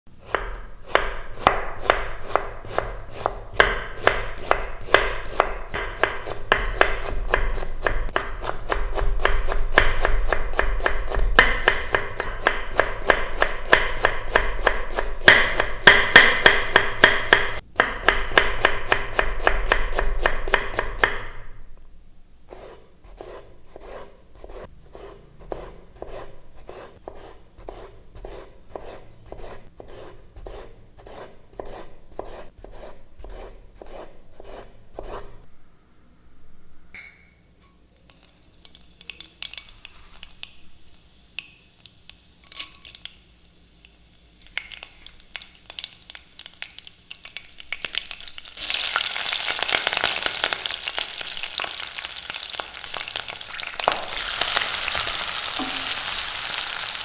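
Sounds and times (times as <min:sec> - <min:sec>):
knife slicing tomatoes: 0:00.2 - 0:21.3, 0:22.5 - 0:35.4
knife chopping on wooden board: 0:00.2 - 0:21.4, 0:22.6 - 0:35.3.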